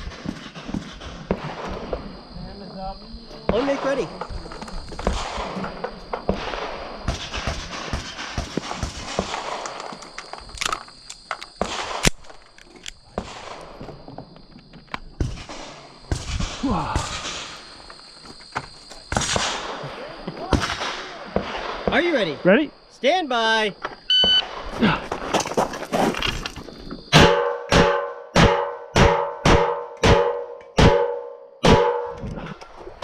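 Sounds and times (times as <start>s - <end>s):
shuffling on gravel: 24.7s - 27.1s.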